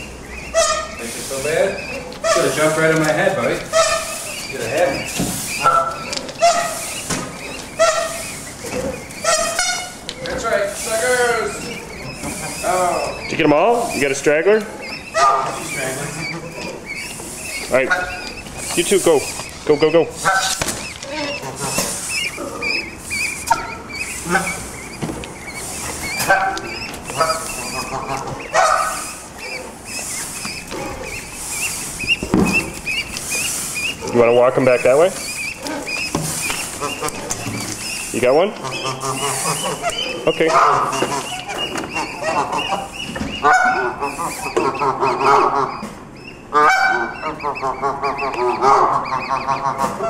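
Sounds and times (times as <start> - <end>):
geese honking: 0.0 - 50.0
goslings peeping: 0.0 - 50.0.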